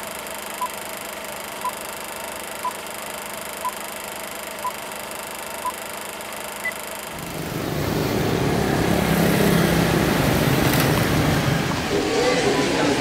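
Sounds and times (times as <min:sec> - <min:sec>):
countdown beeps: 0:01.6 - 0:01.8, 0:03.6 - 0:03.8, 0:04.6 - 0:04.8
road traffic: 0:07.0 - 0:13.0
motorcycles passing close: 0:07.2 - 0:12.9.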